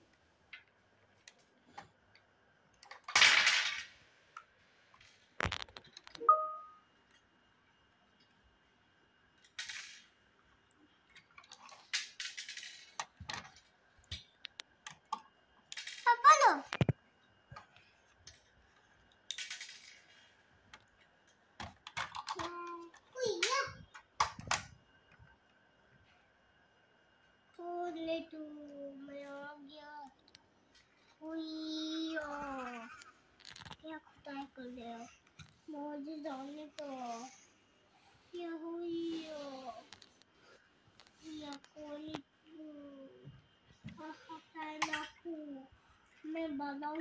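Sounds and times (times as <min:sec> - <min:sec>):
plastic toy parts clicking: 0:05.4 - 0:06.2, 0:15.7 - 0:16.9, 0:19.2 - 0:20.1, 0:21.6 - 0:24.7.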